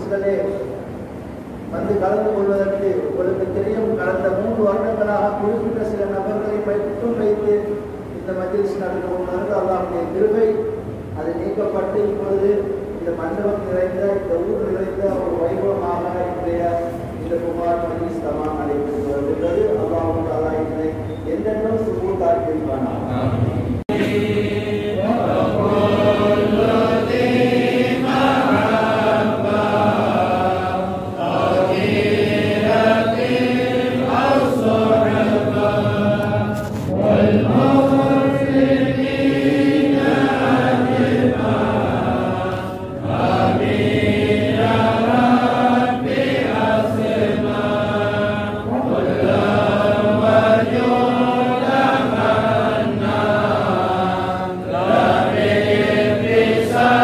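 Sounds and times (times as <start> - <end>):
men chanting together: 23.1 - 57.0.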